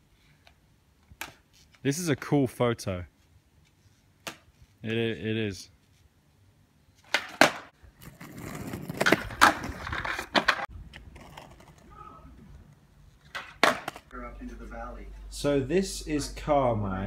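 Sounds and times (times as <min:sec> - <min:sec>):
skateboard wheels rolling on concrete: 0:00.0 - 0:14.4
skateboard cracking down: 0:07.0 - 0:11.8, 0:13.2 - 0:14.1.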